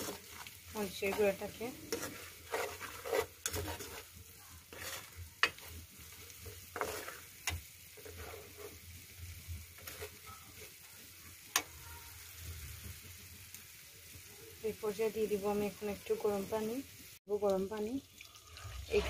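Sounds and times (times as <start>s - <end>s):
spoon scraping a steel pan: 0.0s - 9.0s, 9.7s - 10.8s
onions sizzling in oil: 0.0s - 19.0s.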